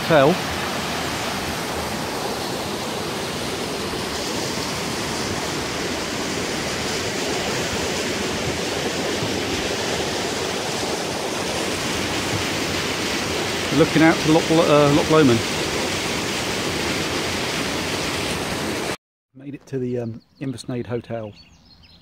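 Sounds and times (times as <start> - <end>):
waterfall rushing: 0.0 - 19.0.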